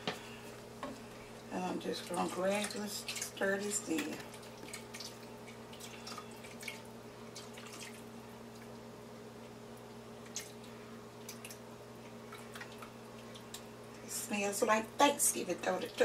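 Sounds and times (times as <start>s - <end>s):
steady low hum: 0.0s - 16.0s
liquid dripping and splashing: 0.9s - 14.1s.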